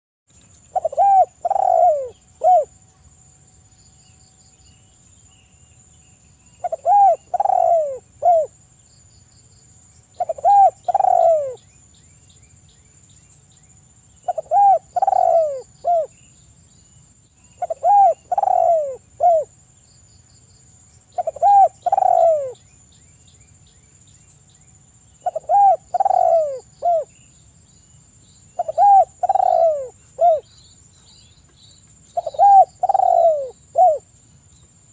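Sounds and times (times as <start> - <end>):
dove cooing: 0.7 - 2.7, 6.6 - 8.5, 10.2 - 11.6, 14.2 - 16.1, 17.6 - 19.5, 21.2 - 22.6, 25.2 - 27.1, 28.6 - 30.5, 32.2 - 34.1.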